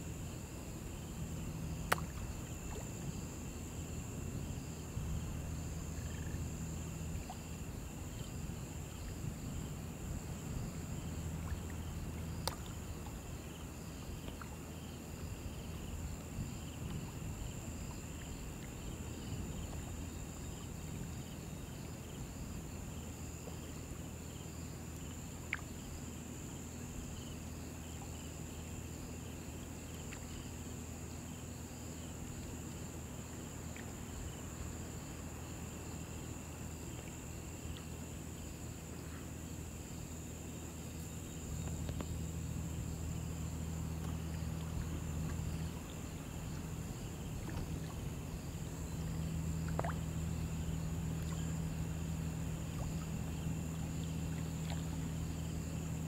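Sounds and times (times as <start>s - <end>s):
insects buzzing: 0.0s - 56.0s
low steady hum: 0.0s - 56.0s
pulsing insect chirp: 0.0s - 56.0s.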